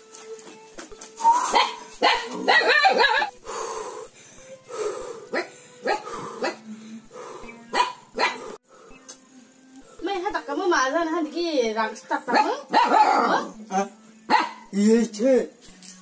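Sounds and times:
dog barking: 1.5s - 3.3s, 5.3s - 6.6s, 7.7s - 8.6s, 12.3s - 13.6s, 14.3s - 14.7s.

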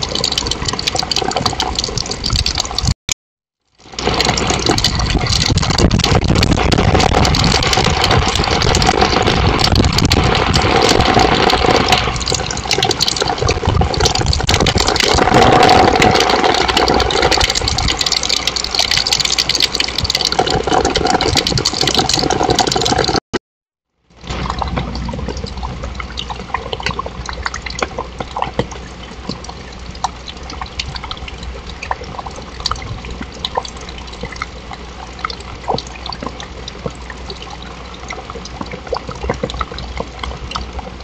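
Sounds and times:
rain falling on a patio: 3.8s - 23.1s.

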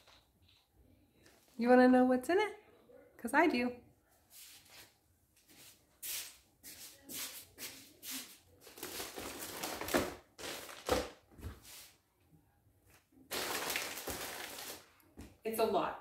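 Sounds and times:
plastic bags crinkling: 8.6s - 11.2s, 13.3s - 14.9s.

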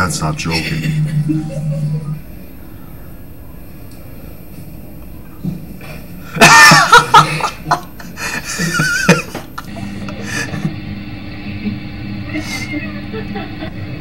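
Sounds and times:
young man laughing hard: 6.3s - 10.8s, 12.3s - 14.0s.

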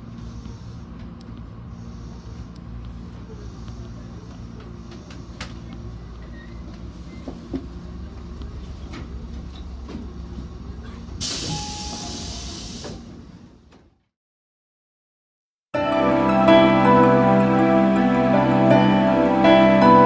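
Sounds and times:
electric train rumbling: 0.0s - 13.9s, 15.8s - 20.0s
compressed air hiss: 11.2s - 13.1s.

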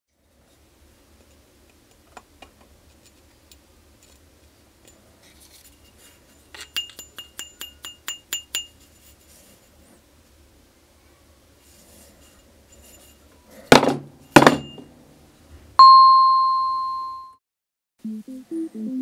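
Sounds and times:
metal pipe clinking: 6.5s - 9.1s.

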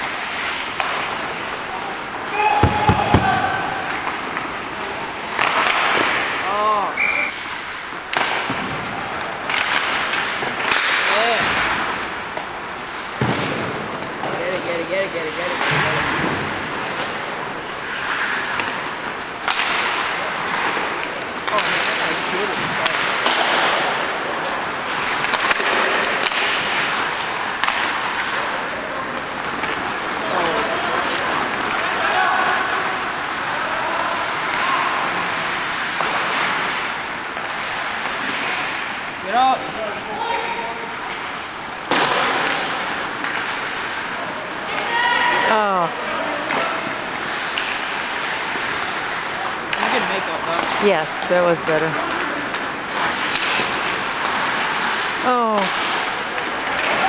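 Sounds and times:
skate blades scraping ice: 0.0s - 39.9s, 40.8s - 45.6s, 46.2s - 57.0s
hockey sticks hitting puck: 0.0s - 57.0s
player shouting: 2.3s - 3.8s.

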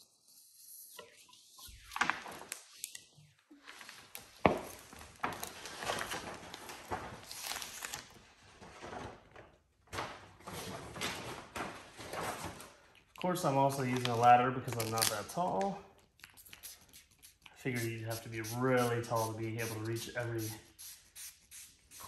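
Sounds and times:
vinyl sheet rustling and crinkling: 1.5s - 15.7s.

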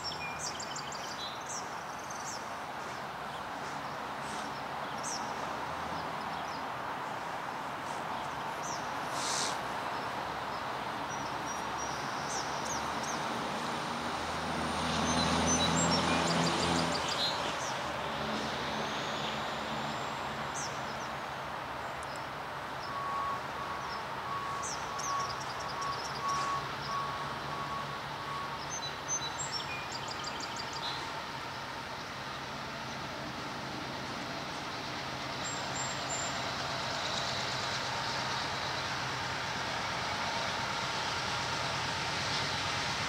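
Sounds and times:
songbirds chirping: 0.0s - 42.7s
steady outdoor hum: 0.0s - 43.0s
distant diesel locomotives rumbling: 22.6s - 43.0s.

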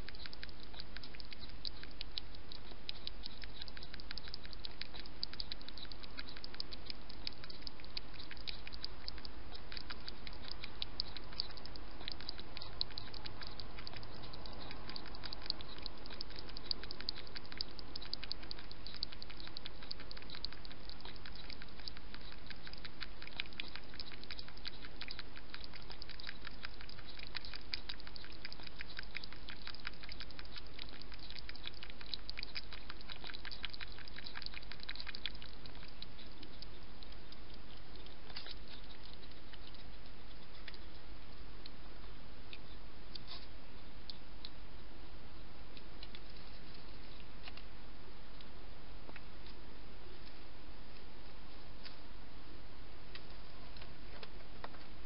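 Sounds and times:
hedgehog mouth clicks: 0.0s - 41.0s, 42.5s - 43.5s, 45.7s - 47.7s.

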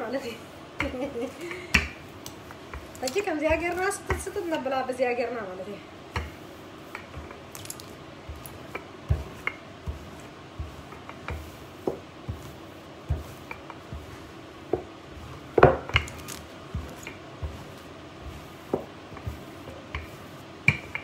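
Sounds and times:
rolling pin knocking on counter: 8.3s - 21.0s.

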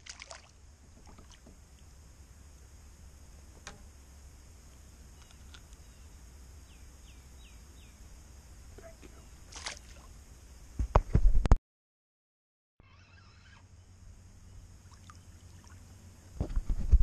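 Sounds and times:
fish splashing at surface: 0.0s - 1.5s, 9.5s - 10.1s
steady low rumble: 0.0s - 11.0s.

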